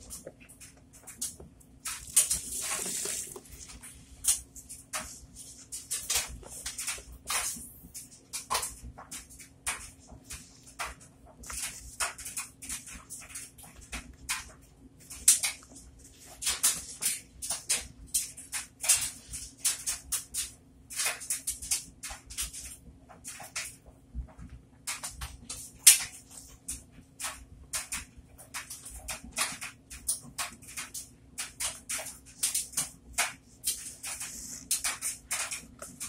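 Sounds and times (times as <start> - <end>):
soapy sponge squelching: 1.8 - 7.8.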